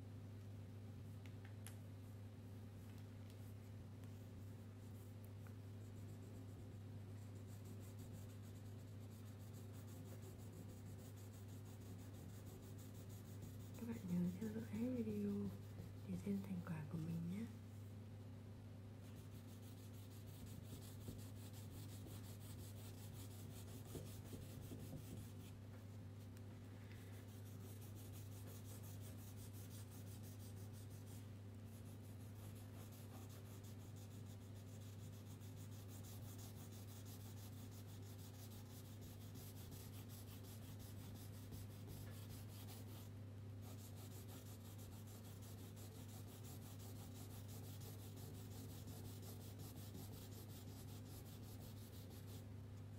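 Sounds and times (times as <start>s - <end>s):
steady low hum: 0.0s - 52.9s
crayon scratching on paper: 7.3s - 15.6s, 19.1s - 25.5s, 27.2s - 52.4s.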